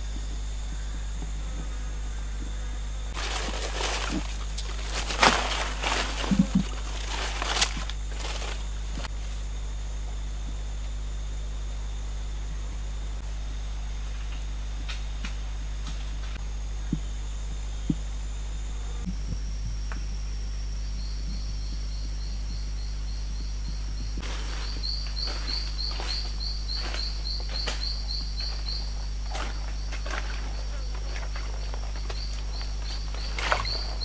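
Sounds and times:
footsteps crunching through leaf litter: 3.2 - 9.2, 24.2 - 34.0.

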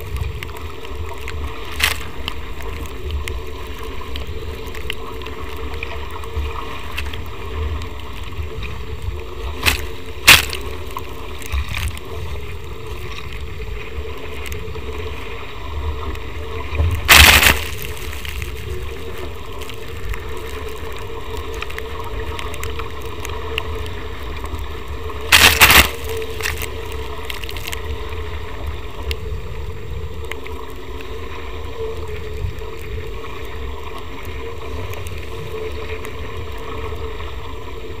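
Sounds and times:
water rushing past hulls: 0.0 - 38.0
wind buffeting camera: 25.2 - 27.2.

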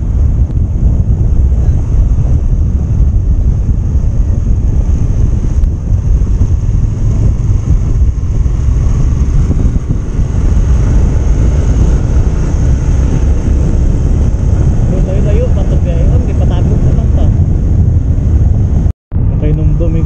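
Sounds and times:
wind rushing over microphone: 0.0 - 20.0.

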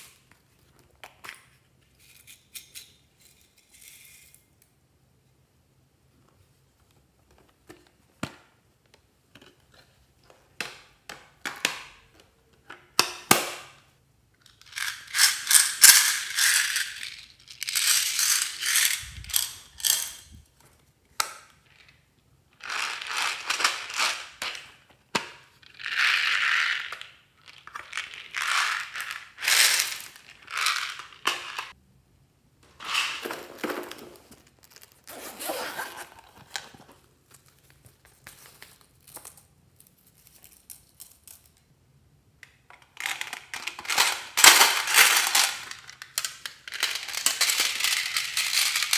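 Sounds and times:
zipper ratcheting rasps: 35.0 - 36.4.

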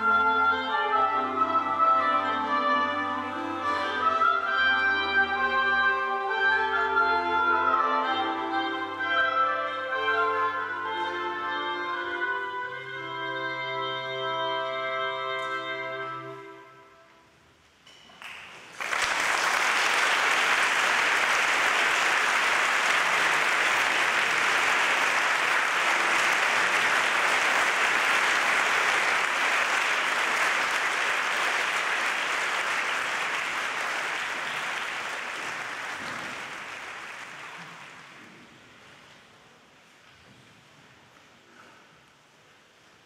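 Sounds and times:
audience applauding: 18.2 - 38.4.

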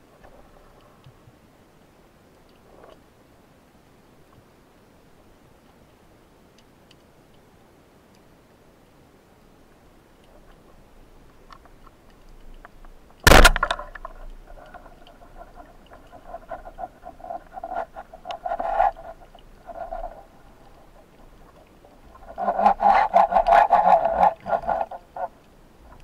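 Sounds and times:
speargun firing crack: 13.2 - 14.2.

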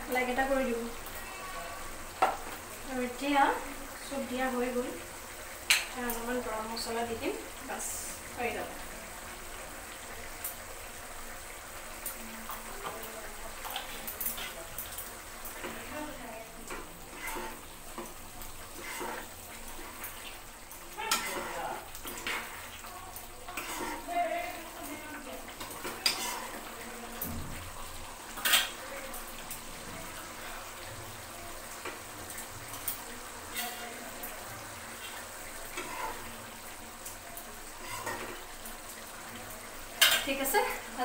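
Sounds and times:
curry simmering with pops: 0.0 - 41.0
steel spoon stirring and scraping: 13.6 - 16.0, 16.6 - 27.0, 33.5 - 34.0, 35.0 - 36.4, 37.7 - 38.5.

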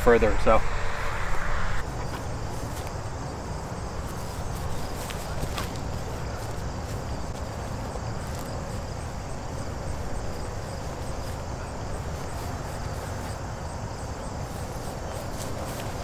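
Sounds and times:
wind buffeting microphone: 0.0 - 5.0
insects chirping: 0.0 - 16.0.

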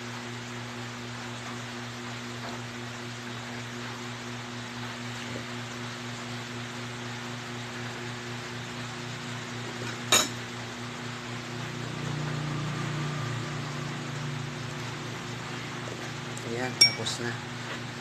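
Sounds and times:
metal spoon clinking on ceramic bowl: 16.7 - 17.2.

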